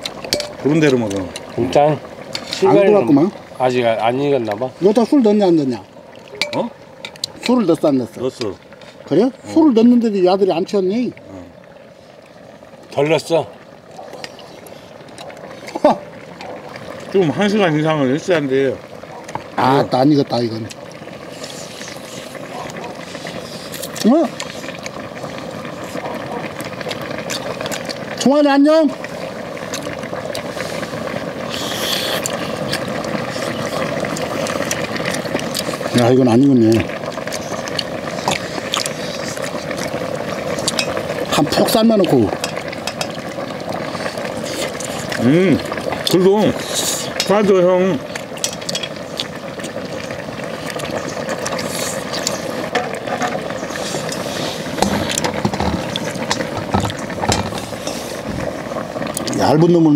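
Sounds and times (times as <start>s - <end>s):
gas burner hissing: 0.0s - 59.9s
stew bubbling in a pan: 0.0s - 59.9s
chewing: 25.8s - 28.0s, 29.7s - 30.5s, 31.5s - 35.8s, 37.0s - 41.0s, 44.4s - 45.2s, 50.6s - 52.5s, 53.7s - 58.0s.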